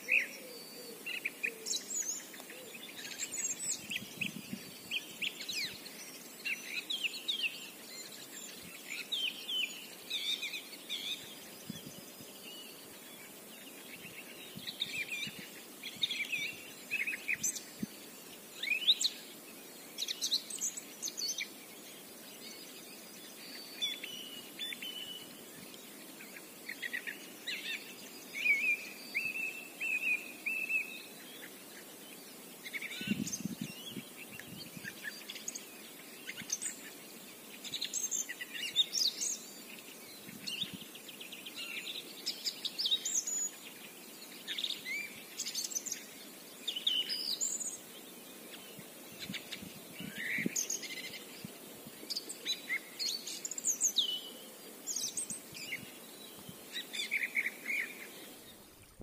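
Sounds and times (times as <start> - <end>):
songbirds chirping and trilling: 0.0 - 59.0.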